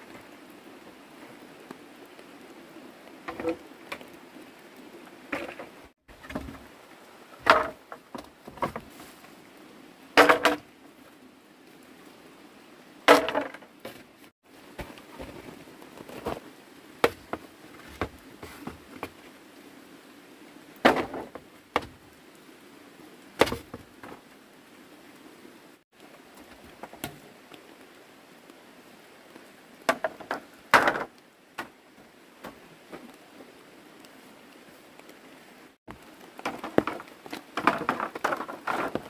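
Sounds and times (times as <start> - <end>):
light rain pattering: 0.0 - 39.0
bamboo poles knocking and clattering: 3.3 - 4.1, 5.3 - 6.7, 7.3 - 9.0, 10.2 - 10.7, 13.1 - 14.1, 14.7 - 16.4, 17.0 - 19.2, 20.8 - 22.0, 23.4 - 24.2, 26.4 - 27.3, 29.9 - 31.8, 35.9 - 39.0.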